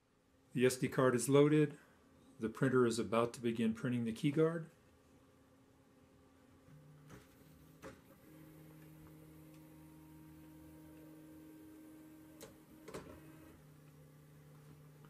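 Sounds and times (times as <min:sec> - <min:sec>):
light printer clicks: 0:12.3 - 0:13.6.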